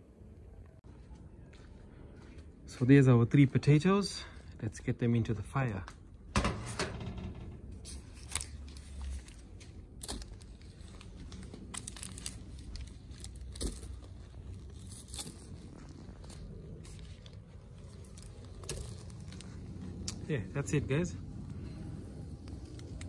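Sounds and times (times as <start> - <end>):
low rumble: 7.0 - 23.0
aluminium foil crinkling: 7.8 - 20.4.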